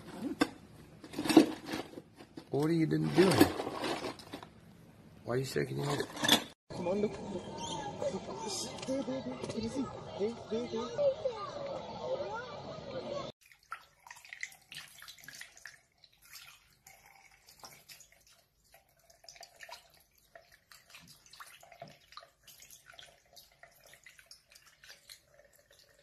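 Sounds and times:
tap water trickling and splashing: 13.4s - 26.0s.

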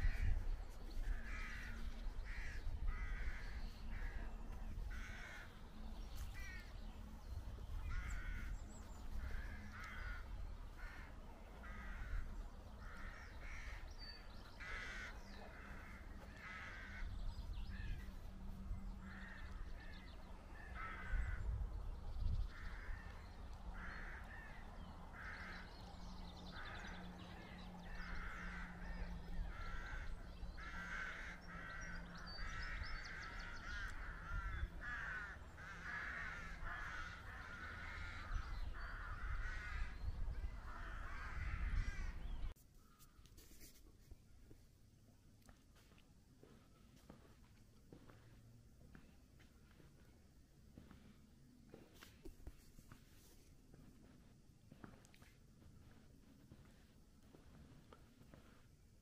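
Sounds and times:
rooks cawing: 0.0s - 5.6s, 6.2s - 7.2s, 7.8s - 21.5s, 22.5s - 42.4s.

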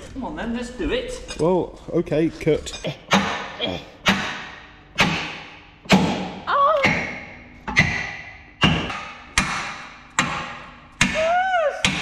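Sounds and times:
hammer striking steel: 3.1s - 12.0s.

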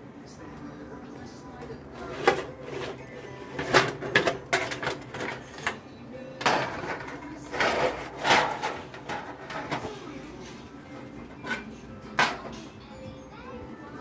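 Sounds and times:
pan scraping clatter: 2.0s - 5.8s, 6.4s - 10.0s, 11.4s - 12.5s.

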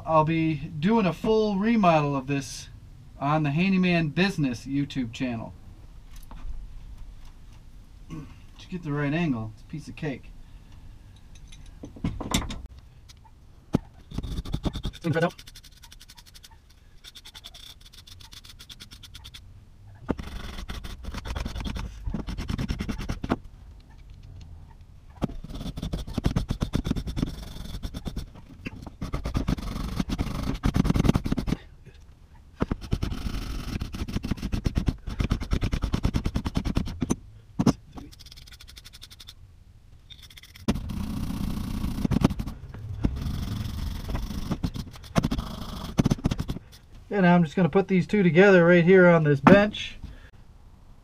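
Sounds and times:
wire brush scrubbing metal threads: 14.0s - 19.4s, 38.0s - 39.4s.

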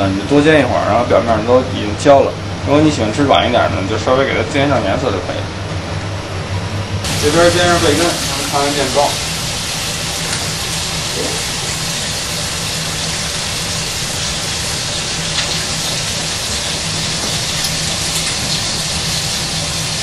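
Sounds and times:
bacon sizzling in a frying pan: 7.1s - 20.0s.

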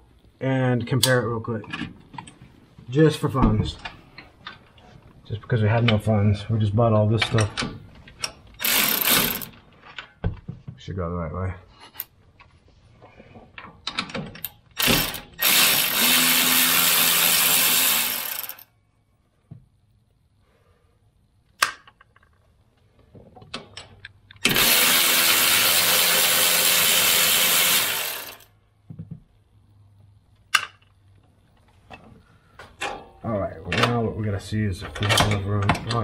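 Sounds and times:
electric ratchet running: 8.6s - 9.6s, 14.8s - 18.7s, 24.4s - 28.5s.

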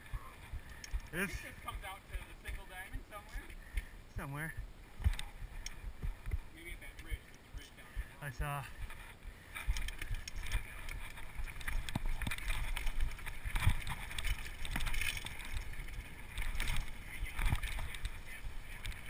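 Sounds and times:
bike tyres rumbling over dirt: 8.6s - 19.0s
bike rattling over bumps: 8.7s - 19.0s.

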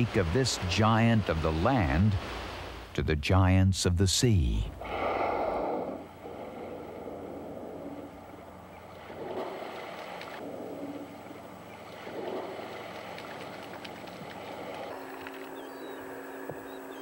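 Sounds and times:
rushing water: 0.0s - 2.9s, 8.1s - 15.4s
whale blowing water and air: 4.8s - 15.0s.

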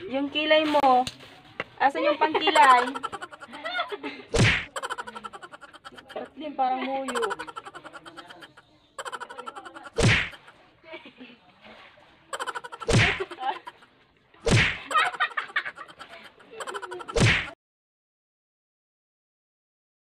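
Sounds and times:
sharp slap-like hits: 4.3s - 4.8s, 10.0s - 10.4s, 12.8s - 13.3s, 14.4s - 14.9s, 17.1s - 17.6s.

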